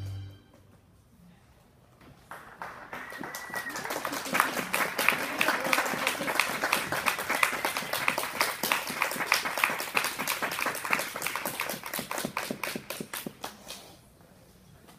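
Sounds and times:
audience applause: 0:02.3 - 0:13.6.

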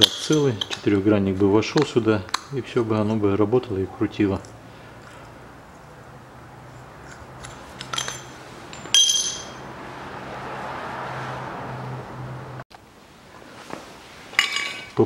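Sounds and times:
ringing metal clink: 0:07.4 - 0:09.6.

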